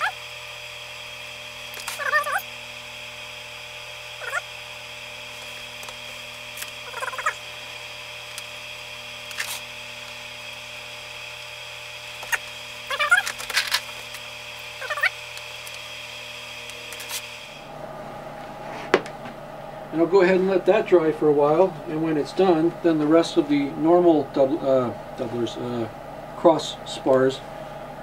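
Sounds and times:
high-pitched hum: 0:00.0 - 0:28.0
clothespins squeaking and clicking: 0:01.7 - 0:02.5, 0:12.1 - 0:14.2.

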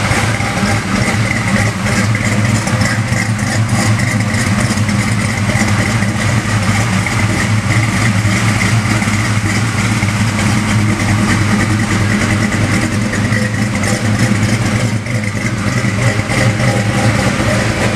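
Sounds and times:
car engine idling: 0:00.0 - 0:17.9.

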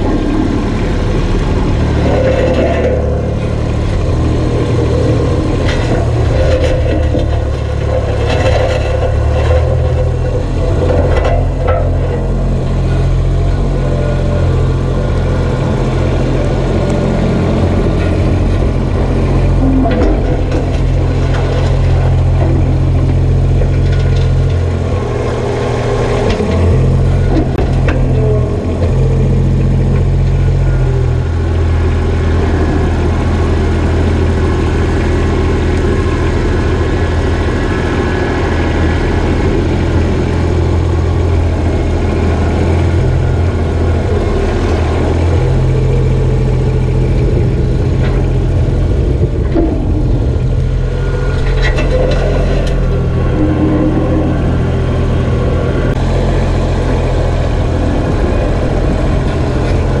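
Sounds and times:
tractor diesel engine running: 0:00.0 - 1:00.0.

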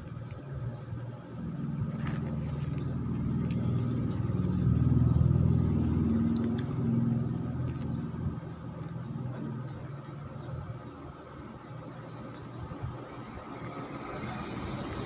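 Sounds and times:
passing vehicle engine: 0:01.6 - 0:09.8, 0:13.1 - 0:15.0.

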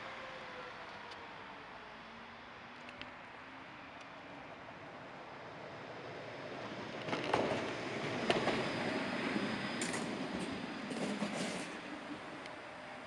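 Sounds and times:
tram rumbling past: 0:04.8 - 0:13.0.

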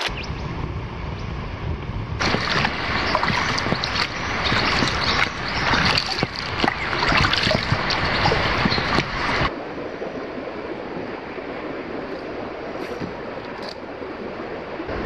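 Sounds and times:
water drips: 0:02.2 - 0:09.5
paddles splashing water: 0:02.2 - 0:15.0.

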